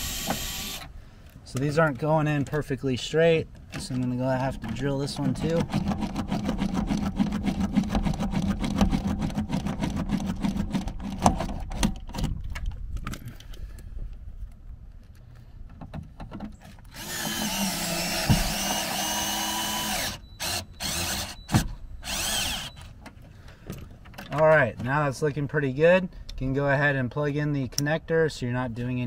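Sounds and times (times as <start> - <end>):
cordless drill drilling plastic: 0.0 - 0.9, 16.9 - 21.4, 22.0 - 22.9.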